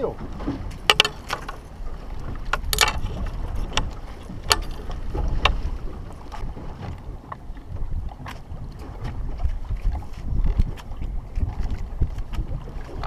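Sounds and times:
water against boat hull: 0:00.0 - 0:13.0
wind buffeting microphone: 0:00.0 - 0:13.0
sharp clicks and knocks: 0:00.7 - 0:01.6, 0:02.5 - 0:05.6.

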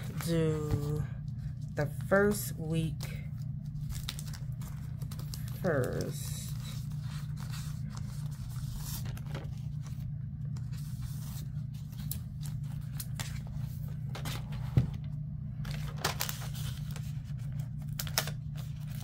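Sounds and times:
low hum: 0:00.0 - 0:19.0
paper rustling and scraping: 0:03.6 - 0:19.0.

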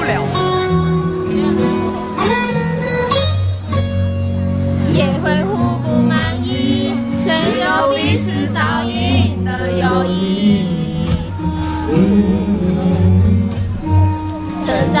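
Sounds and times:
backing music: 0:00.0 - 0:15.0
man singing a ballad: 0:04.8 - 0:15.0.

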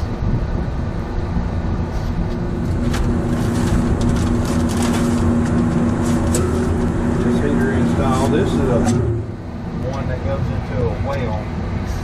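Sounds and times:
low drone: 0:00.0 - 0:12.0
machinery hum: 0:00.0 - 0:12.0
plastic bag crinkling: 0:02.8 - 0:06.4.

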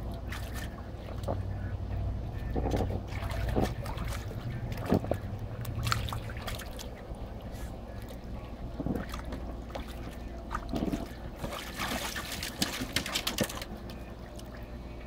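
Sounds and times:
pool water splashing: 0:00.0 - 0:01.7, 0:02.4 - 0:15.0
steady low hum: 0:00.0 - 0:15.0.

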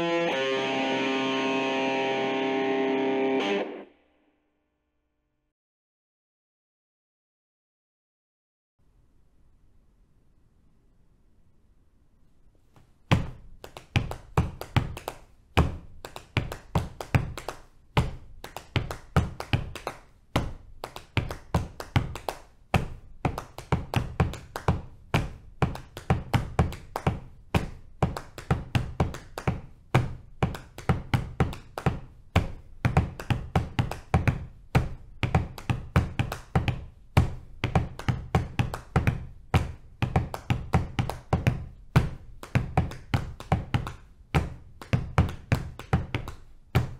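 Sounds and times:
feet tapping the floor: 0:12.7 - 0:15.0, 0:22.8 - 0:46.9
hands patting thighs: 0:12.7 - 0:46.9.

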